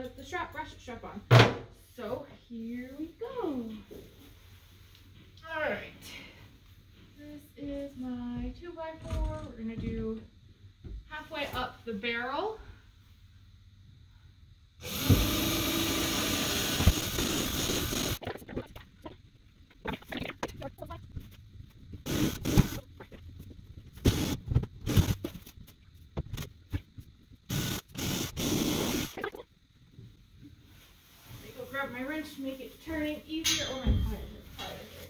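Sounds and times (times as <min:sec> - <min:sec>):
cordless drill boring into wood: 0:14.8 - 0:18.2, 0:22.1 - 0:22.8, 0:27.5 - 0:29.2.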